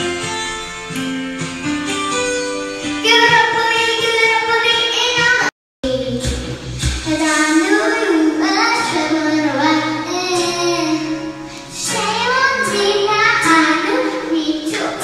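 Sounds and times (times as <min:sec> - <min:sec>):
karaoke backing music: 0:00.0 - 0:15.0
child singing into microphone: 0:03.0 - 0:15.0.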